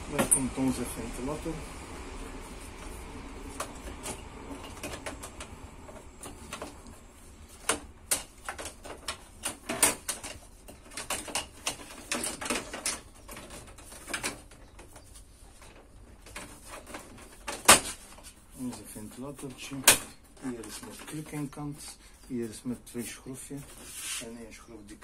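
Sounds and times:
fan clicking against metal casing: 2.8s - 22.0s.

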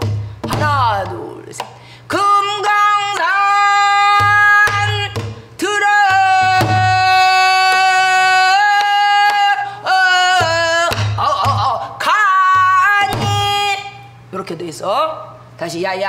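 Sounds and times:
barrel drum strokes: 0.0s - 1.4s
woman singing long wavering notes: 2.1s - 14.1s.

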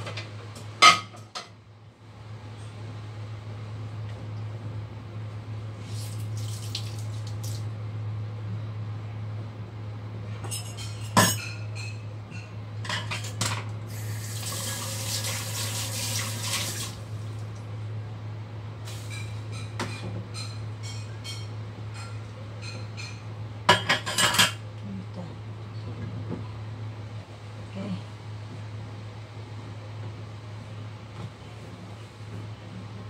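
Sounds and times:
steady low hum: 0.0s - 15.0s, 16.8s - 33.0s
dishes clattering in sink: 0.8s - 1.6s, 10.4s - 13.7s, 19.0s - 24.6s
tap water running: 5.9s - 7.7s, 13.9s - 17.6s.

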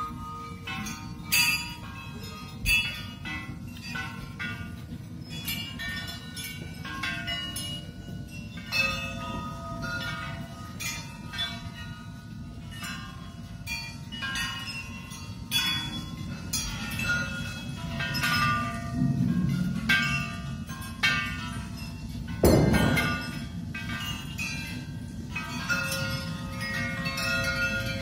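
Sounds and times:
struck metal bell-like tones: 12.7s - 28.0s.

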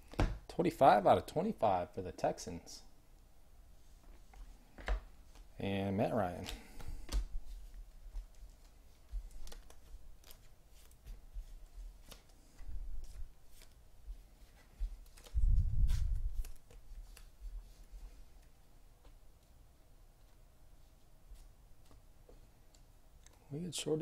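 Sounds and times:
cards clicking and rustling: 6.3s - 7.3s, 8.2s - 11.2s, 14.5s - 17.4s.

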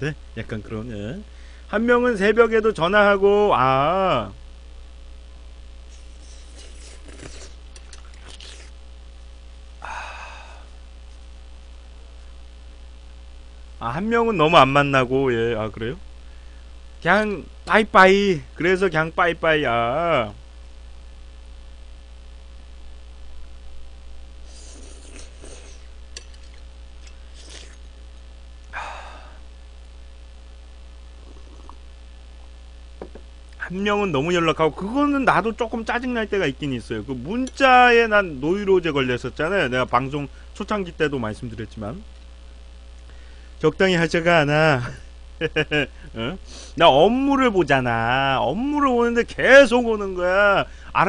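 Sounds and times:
low electrical hum: 0.0s - 51.0s
slurping noodles: 5.9s - 8.7s, 24.4s - 27.9s, 31.2s - 31.8s.

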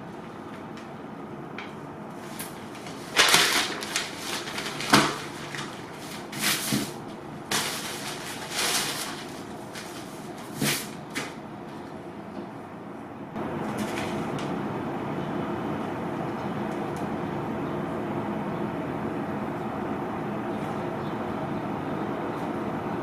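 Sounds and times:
newspaper rustling: 2.1s - 12.0s, 13.5s - 14.6s.

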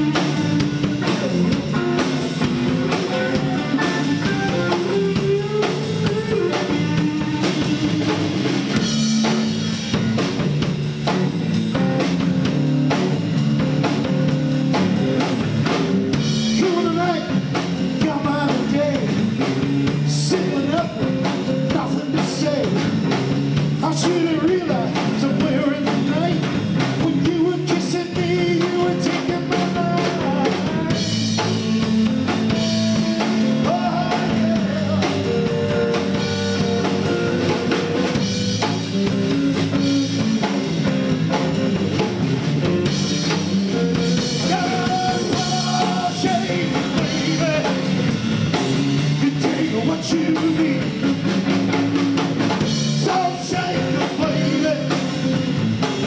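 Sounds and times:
bass guitar: 0.0s - 56.0s
drum kit: 0.0s - 56.0s
electric guitars: 0.0s - 56.0s
man singing into microphone: 16.6s - 17.4s, 18.0s - 19.2s, 20.1s - 22.9s, 23.8s - 30.8s, 33.6s - 35.3s, 44.4s - 47.9s, 49.2s - 51.1s, 53.0s - 55.2s.

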